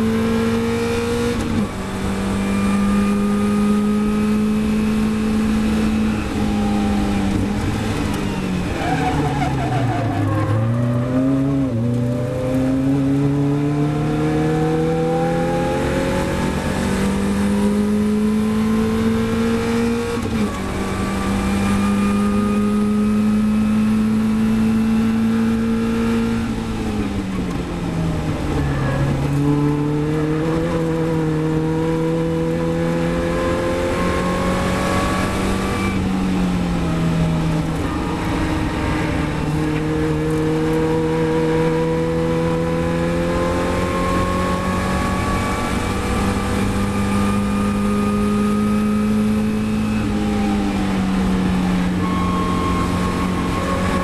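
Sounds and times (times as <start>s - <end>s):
race car engine under load: 0.0s - 54.0s
wind and road noise: 0.0s - 54.0s.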